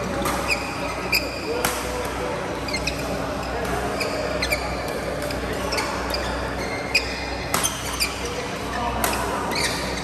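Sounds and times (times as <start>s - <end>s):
rackets hitting shuttlecock: 0.0s - 2.3s, 7.4s - 8.3s, 8.9s - 10.0s
shoes squeaking on court: 0.1s - 2.0s, 2.6s - 10.0s.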